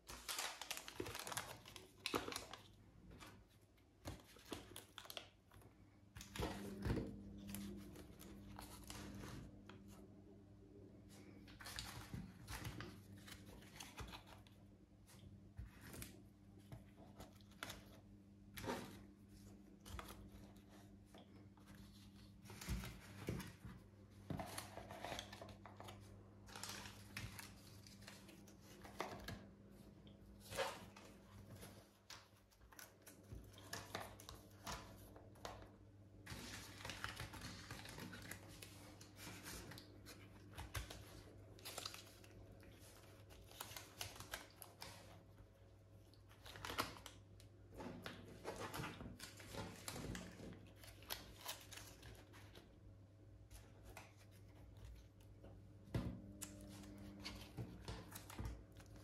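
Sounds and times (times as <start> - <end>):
plastic bags rustling and crinkling: 0.0 - 5.3.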